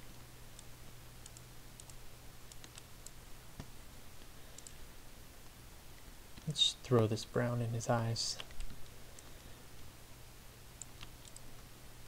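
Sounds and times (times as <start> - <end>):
faint low hum: 0.0 - 12.0
computer mouse clicks: 0.1 - 3.7, 4.5 - 4.8, 8.4 - 9.9, 10.8 - 11.7.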